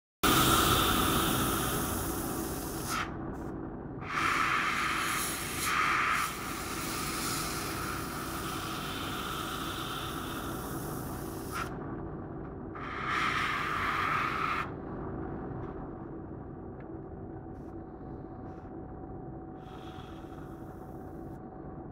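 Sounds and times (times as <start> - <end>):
airbrush hissing: 0.2 - 3.1, 4.0 - 11.7, 12.8 - 14.7, 19.6 - 21.0.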